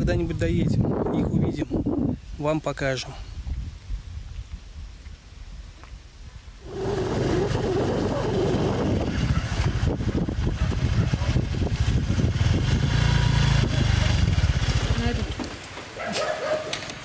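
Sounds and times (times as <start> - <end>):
small motorbike engine running: 6.7 - 15.5.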